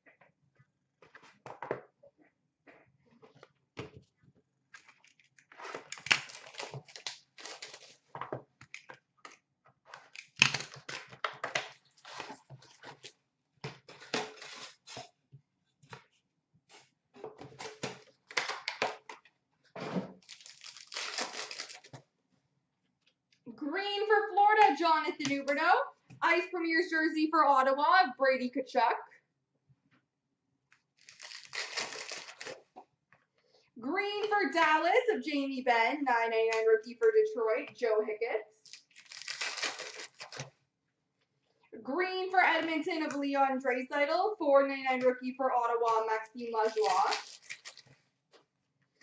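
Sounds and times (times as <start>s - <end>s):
cardboard and packs tearing: 4.9s - 8.1s, 10.0s - 13.1s, 13.8s - 15.1s, 20.2s - 21.9s, 31.0s - 32.7s, 38.6s - 40.5s, 46.5s - 48.0s
cards rustling: 20.2s - 22.0s, 31.0s - 32.7s, 38.7s - 40.5s, 45.9s - 48.0s.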